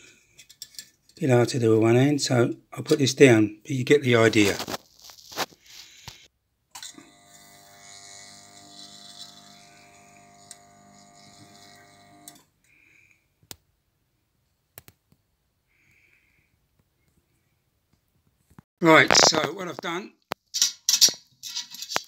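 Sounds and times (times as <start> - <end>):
light clicks of metal parts: 0.2 - 1.2
soldering unit humming: 6.9 - 12.4.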